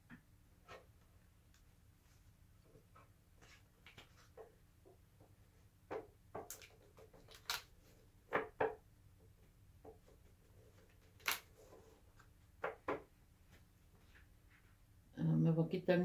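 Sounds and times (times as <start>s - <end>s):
cards clicking on wooden board: 5.9s - 8.8s, 10.8s - 11.7s.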